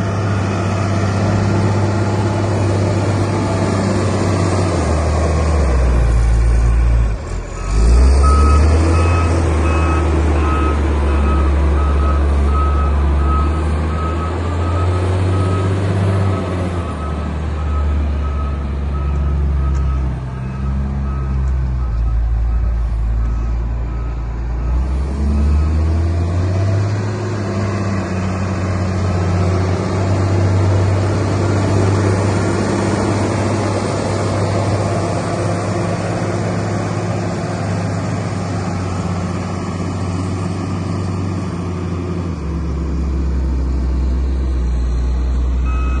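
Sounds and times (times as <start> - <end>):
wheel loader diesel engine: 0.0 - 46.0
reversing alarm beeping: 7.5 - 26.1, 45.6 - 46.0.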